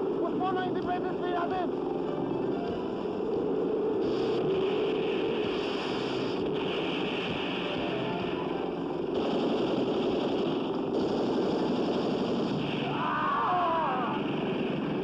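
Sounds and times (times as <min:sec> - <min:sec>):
continuous gunfire: 0:00.0 - 0:15.0
explosions: 0:04.0 - 0:15.0.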